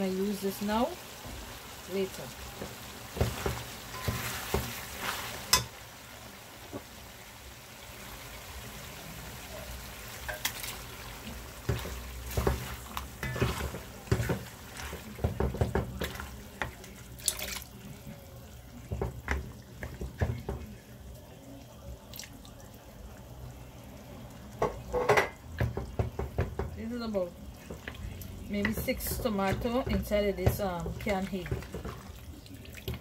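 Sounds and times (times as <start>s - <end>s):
food sizzling in a metal pot: 0.0s - 33.0s
spoon knocking and scraping a pot: 2.6s - 4.8s, 11.6s - 16.8s, 24.6s - 26.8s, 27.6s - 32.1s
wet plopping and splashing: 17.2s - 17.7s.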